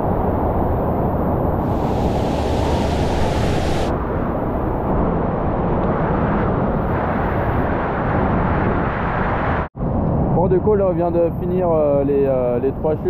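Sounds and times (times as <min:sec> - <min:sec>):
waterfall rushing: 0:01.6 - 0:03.9.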